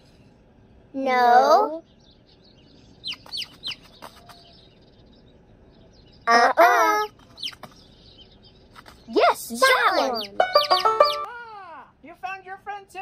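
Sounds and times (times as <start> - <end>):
high cartoon voice: 1.0 - 1.8, 6.3 - 7.1, 9.1 - 11.8
cartoon chicks peeping: 1.0 - 11.5.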